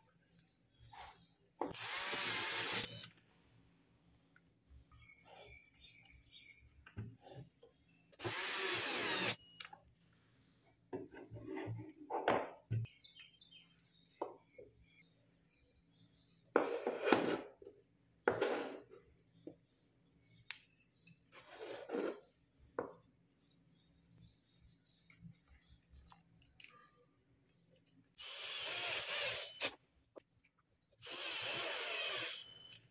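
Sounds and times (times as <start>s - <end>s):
wood scraping on tabletop: 16.6s - 17.6s, 21.4s - 22.3s.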